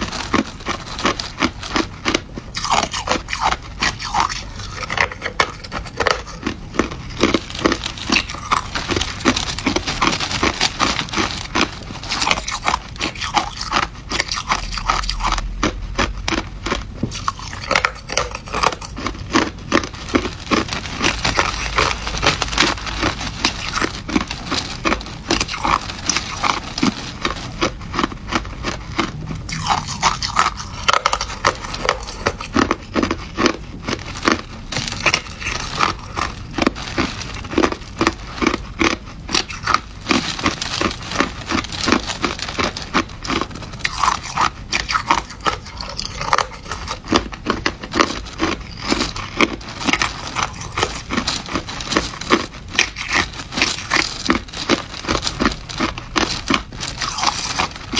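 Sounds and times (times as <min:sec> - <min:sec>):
chewing crushed ice: 0:00.0 - 0:57.9.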